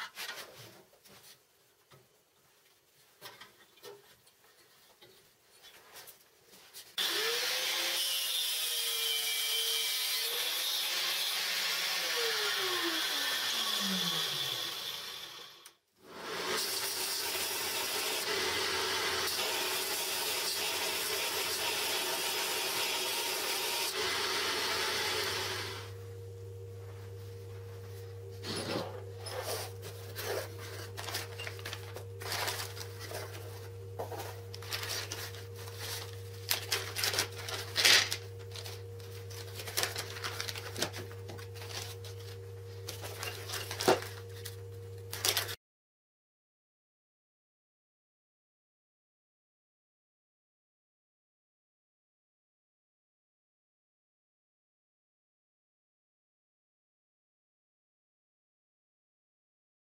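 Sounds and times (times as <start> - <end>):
belt grinder grinding steel: 7.0 - 15.7, 16.3 - 25.9
angle grinder cutting: 7.0 - 26.0
low steady hum: 25.8 - 45.2.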